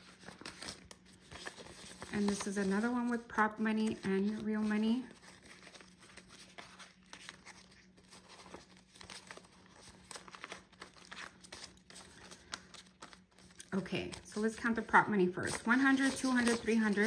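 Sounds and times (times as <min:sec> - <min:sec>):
paper banknotes rustling: 0:00.0 - 0:17.0.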